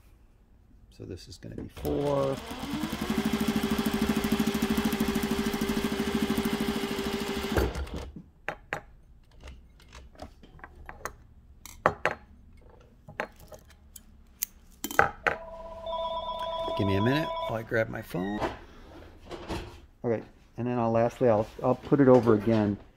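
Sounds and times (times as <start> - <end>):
sewing machine stitching: 1.8 - 8.1.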